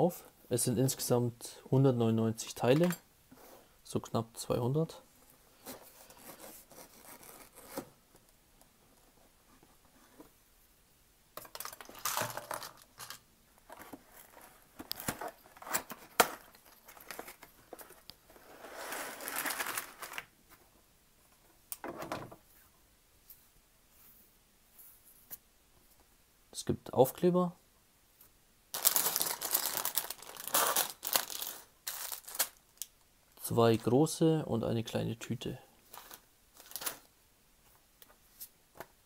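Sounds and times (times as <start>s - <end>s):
plastic bags crinkling: 11.5s - 18.0s, 18.8s - 20.3s, 28.7s - 32.8s, 35.9s - 37.1s
cardboard tearing and rustling: 18.6s - 20.2s, 28.8s - 32.6s.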